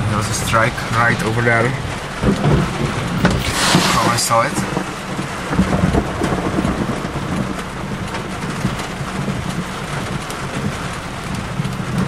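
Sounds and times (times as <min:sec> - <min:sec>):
rain on car roof: 0:00.0 - 0:12.0
low rumble: 0:02.2 - 0:09.0.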